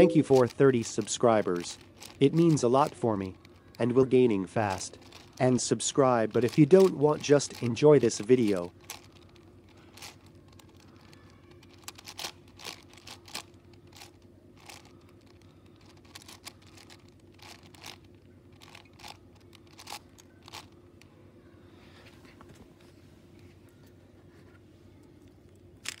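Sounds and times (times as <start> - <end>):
faint low hum: 0.0 - 26.0.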